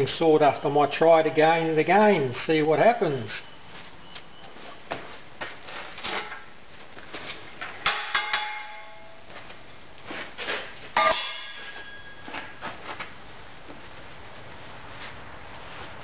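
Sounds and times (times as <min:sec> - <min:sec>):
metal castings knocking and clanging: 0:07.6 - 0:09.2, 0:11.0 - 0:12.5.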